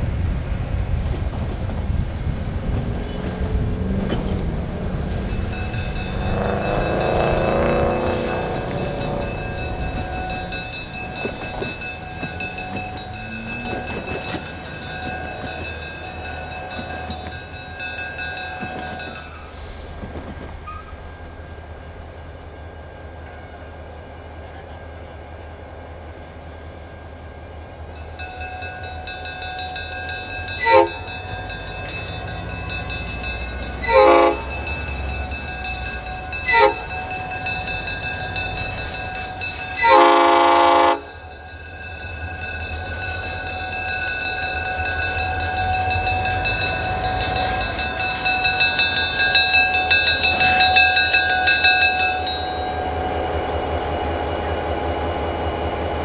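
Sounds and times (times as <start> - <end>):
diesel locomotive rumbling: 0.0 - 56.0
crossing bells ringing: 3.1 - 19.8, 20.9 - 56.0
train air horn blasts: 6.3 - 9.4, 30.6 - 31.1, 33.8 - 34.6, 36.4 - 37.0, 39.8 - 41.2.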